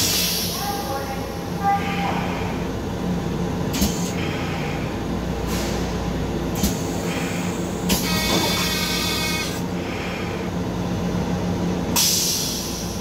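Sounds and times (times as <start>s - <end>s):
air hissing: 0.0s - 0.7s, 11.9s - 13.0s
train low hum and rumble: 0.0s - 13.0s.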